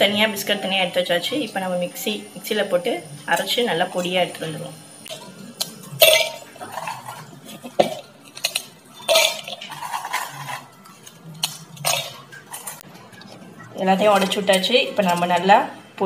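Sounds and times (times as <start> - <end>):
pieces clinking into steel jar: 8.4 - 10.8.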